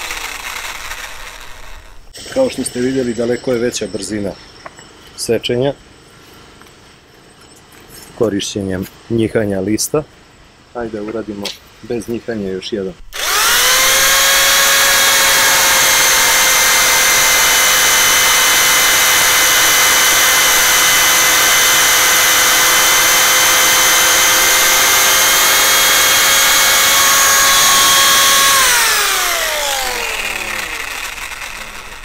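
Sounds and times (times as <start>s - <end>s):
jigsaw motor whine: 0.0s - 2.9s, 13.1s - 32.0s
saw blade rasping through wood: 0.0s - 3.3s, 13.2s - 32.0s.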